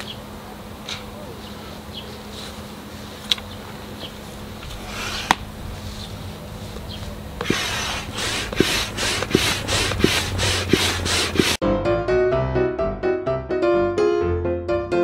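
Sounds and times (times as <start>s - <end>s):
faint steady hum: 0.0s - 11.1s.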